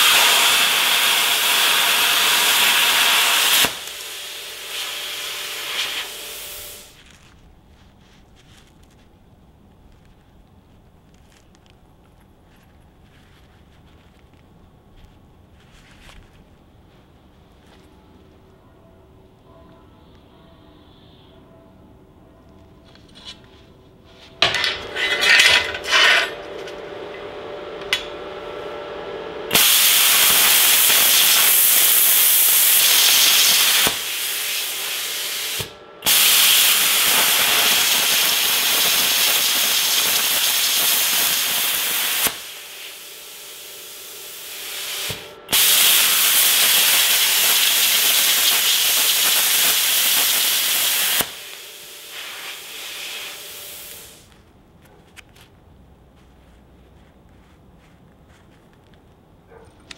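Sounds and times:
plasma cutter hissing: 0.0s - 7.0s, 29.5s - 54.3s.

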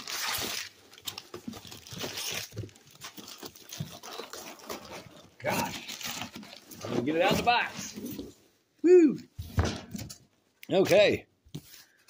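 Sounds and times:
cardboard box rustling and scraping: 1.1s - 8.4s.

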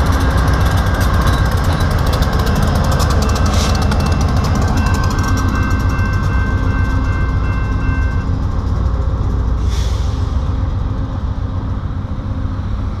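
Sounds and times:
diesel locomotive rumble: 0.0s - 13.0s
level-crossing bell ringing: 1.4s - 8.3s.

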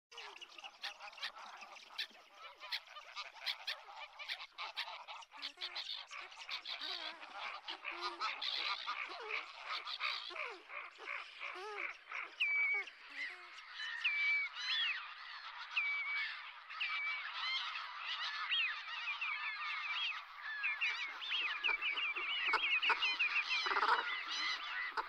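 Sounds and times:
geese calling: 0.2s - 25.0s.

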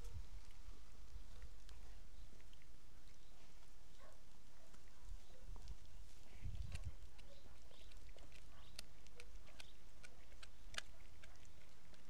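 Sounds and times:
dog gnawing a bone: 6.5s - 12.0s.

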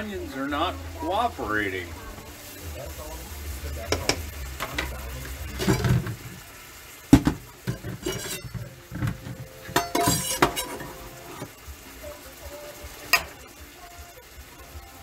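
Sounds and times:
pots and pans clanking: 3.9s - 6.4s, 7.1s - 11.6s, 13.1s - 13.4s.

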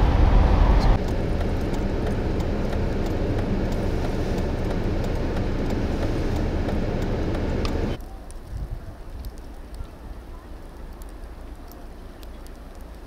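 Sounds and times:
highway traffic rumble: 0.0s - 13.0s
wind in snowstorm: 0.0s - 13.0s.

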